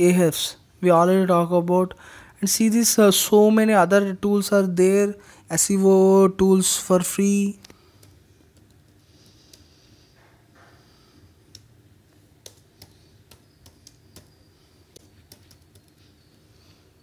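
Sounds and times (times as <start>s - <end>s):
computer keyboard typing: 7.9s - 9.7s, 11.4s - 16.4s.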